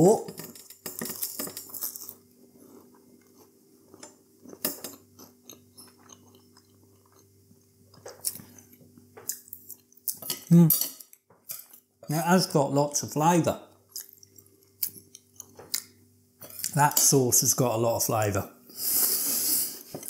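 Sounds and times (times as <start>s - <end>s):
faint steady hum: 0.0s - 20.0s
quiet chewing: 0.4s - 11.9s, 13.8s - 16.8s.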